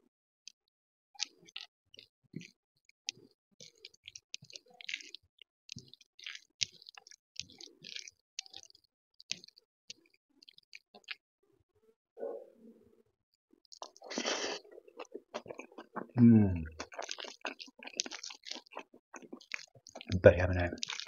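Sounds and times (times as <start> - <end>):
crispy food crackling: 1.2 - 11.2, 13.6 - 21.0
fingers squishing rice: 3.1 - 11.2, 13.7 - 21.0.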